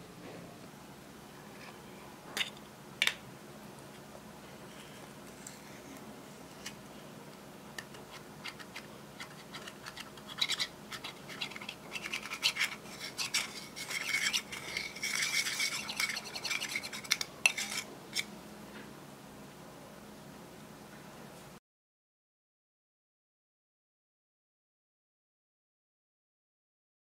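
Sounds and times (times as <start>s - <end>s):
tool scraping pressed eyeshadow: 7.9s - 18.3s.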